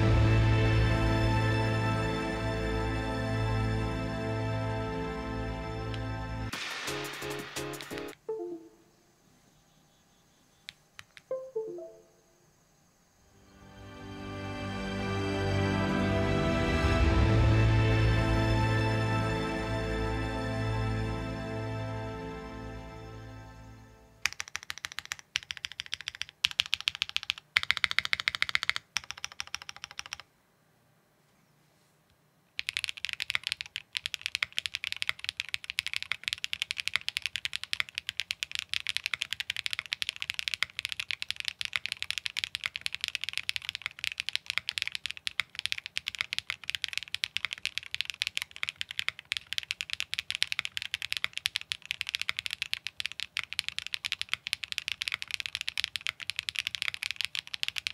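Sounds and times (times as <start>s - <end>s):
mechanical keyboard typing: 24.2s - 30.3s, 32.6s - 57.9s.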